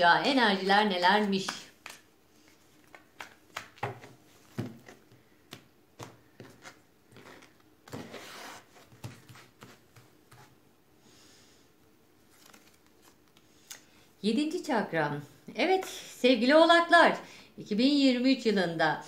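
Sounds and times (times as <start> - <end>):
cards clicking and tapping: 1.4 - 8.1
cards sliding on wood: 6.0 - 10.5.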